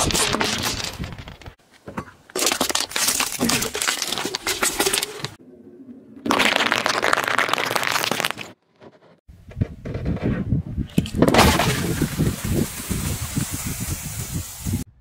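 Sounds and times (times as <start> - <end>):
tyre crushing tomatoes: 0.0 - 5.4
cans crushing and bursting: 2.3 - 5.4, 6.3 - 8.6, 11.0 - 13.5.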